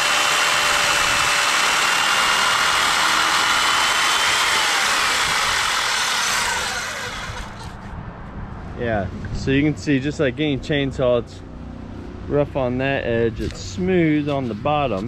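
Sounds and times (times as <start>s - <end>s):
saw cutting wooden beam: 0.0s - 7.9s.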